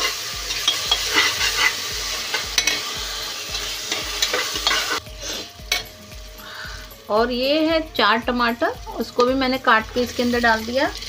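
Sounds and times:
metal spatula scraping pot: 0.0s - 5.8s
onions sizzling in oil: 0.0s - 11.0s.

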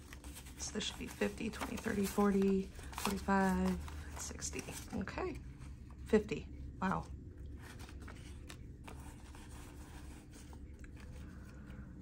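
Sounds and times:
banknotes rustling: 0.0s - 12.0s
low background hum: 0.0s - 12.0s.

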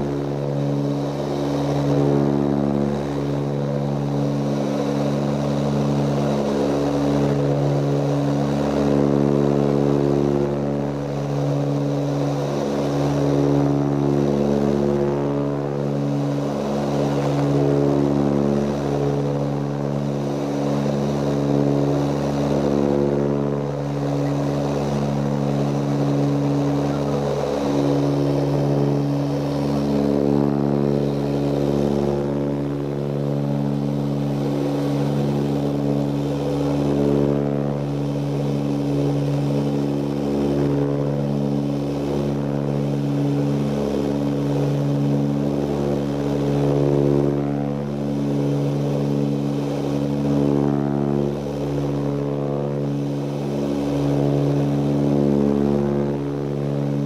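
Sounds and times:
turboprop engines droning in cabin: 0.0s - 57.0s.

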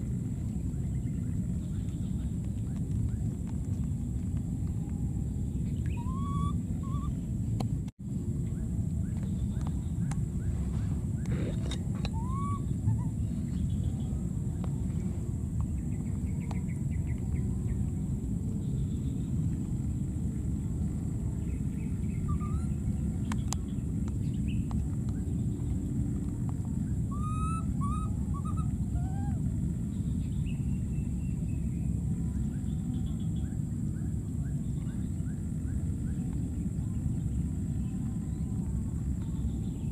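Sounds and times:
faint high whine: 0.0s - 39.9s
low outdoor rumble: 0.0s - 39.9s
high arching animal calls: 5.4s - 7.4s, 9.9s - 15.0s, 21.5s - 23.7s, 26.8s - 29.7s.

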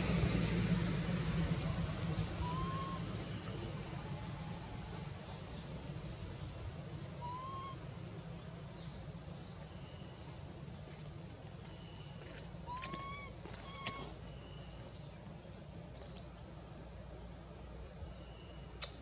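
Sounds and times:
steady low rumble: 0.0s - 19.0s
short rising chirping calls: 2.2s - 10.2s.

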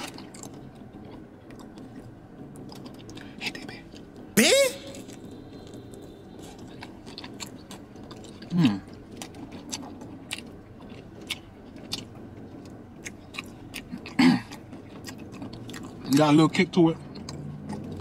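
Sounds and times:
wet chewing and lip smacks: 5.0s - 18.0s.

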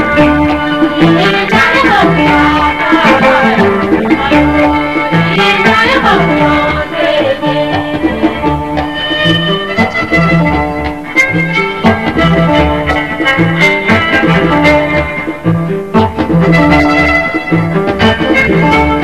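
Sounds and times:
live band music: 0.0s - 19.0s.

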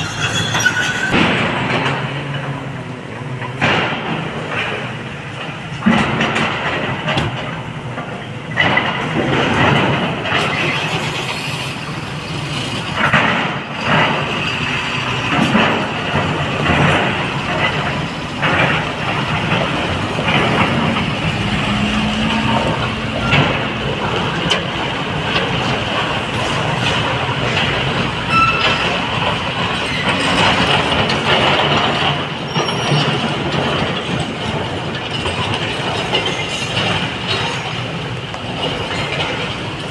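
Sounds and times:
diesel truck engine: 0.0s - 39.9s
metal body knocking and clanking: 15.3s - 32.3s.

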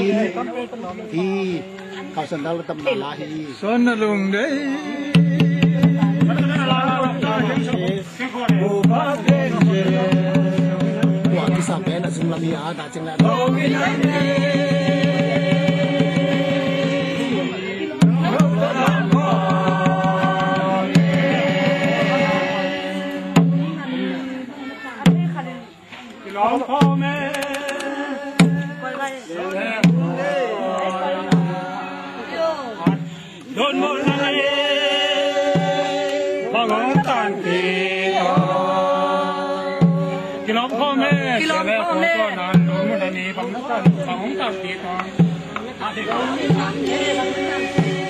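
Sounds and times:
group singing a slow chant: 0.0s - 2.4s, 4.2s - 48.0s
barrel drum strikes: 5.2s - 23.9s, 28.4s - 28.8s, 43.8s - 48.0s.

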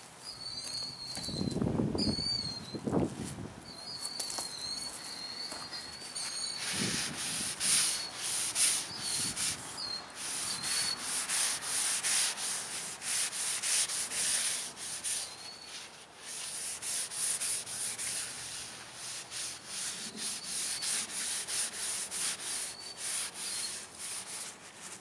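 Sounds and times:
paper towel rubbing wood: 6.1s - 25.0s.

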